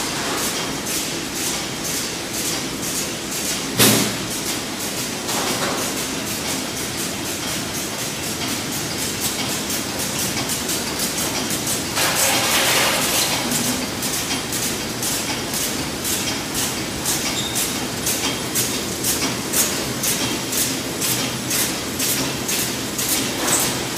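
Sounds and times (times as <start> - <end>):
mechanical hum of packing line: 0.0 - 23.9
regular machine clack: 8.3 - 23.9.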